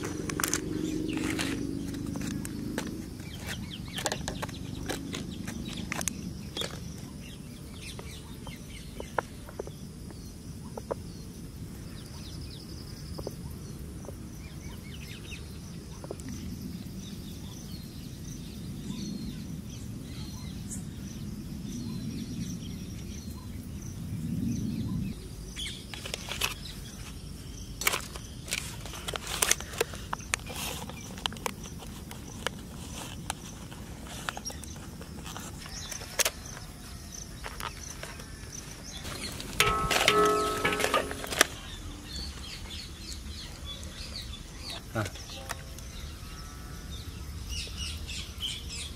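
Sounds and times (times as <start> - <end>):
outdoor background noise: 0.0 - 48.9
cups and trays clicking on metal: 39.6 - 41.6.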